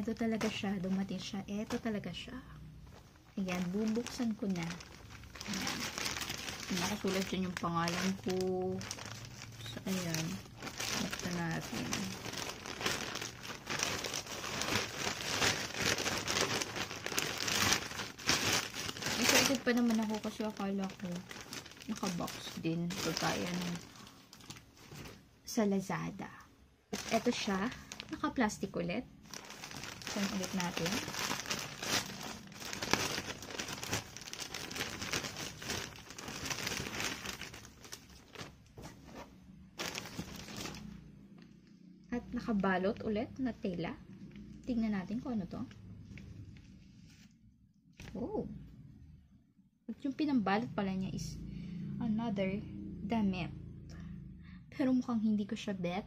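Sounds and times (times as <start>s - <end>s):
plastic packaging crinkling: 2.9s - 25.2s, 26.9s - 41.1s.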